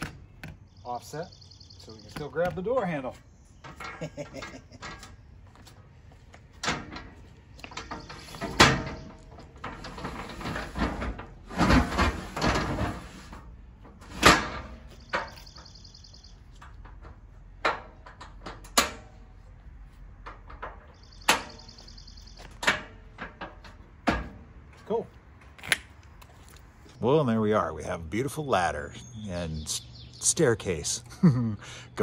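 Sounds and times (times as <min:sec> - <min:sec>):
metal ladder clanking: 0:03.6 - 0:05.3, 0:06.6 - 0:15.8, 0:16.5 - 0:19.3, 0:20.2 - 0:24.4
metal ladder scraping slide: 0:06.6 - 0:15.6.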